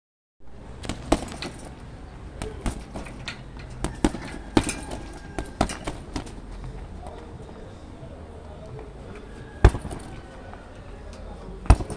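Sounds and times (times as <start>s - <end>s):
gloves thudding on punching bag: 0.8s - 1.7s, 2.4s - 6.4s, 9.6s - 10.2s, 11.6s - 11.9s.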